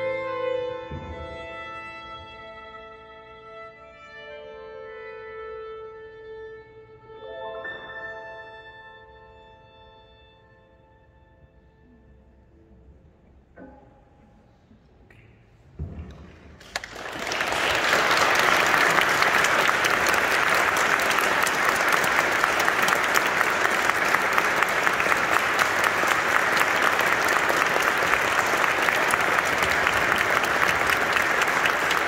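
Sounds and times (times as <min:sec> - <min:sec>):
audience applauding: 0:16.6 - 0:32.0.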